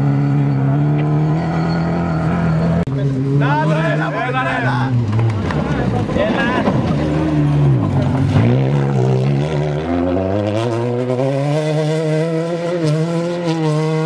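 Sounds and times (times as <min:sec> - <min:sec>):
rally car engine at high revs: 0:00.0 - 0:14.0.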